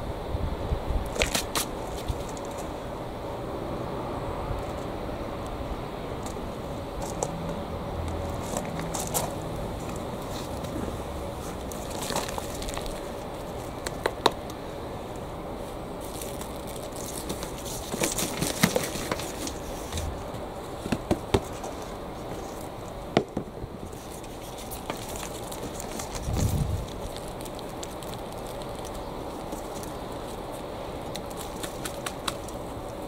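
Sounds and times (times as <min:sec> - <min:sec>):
soil rustling and crumbling: 0:06.1 - 0:23.2, 0:23.8 - 0:33.0.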